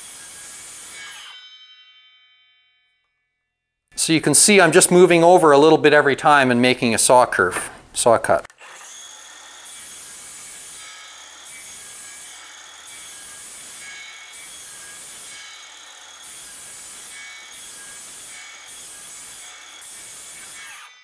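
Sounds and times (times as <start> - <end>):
circular saw cutting wood: 0.0 - 1.4, 8.5 - 21.0.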